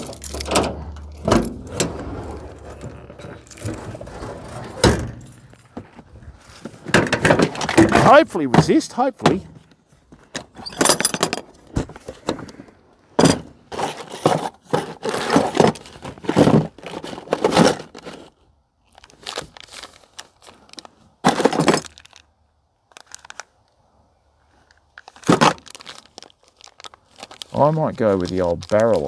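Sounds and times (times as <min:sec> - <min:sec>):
small tackle pieces rattling: 0:00.0 - 0:01.1
plastic box lid and trays clattering: 0:06.8 - 0:09.5.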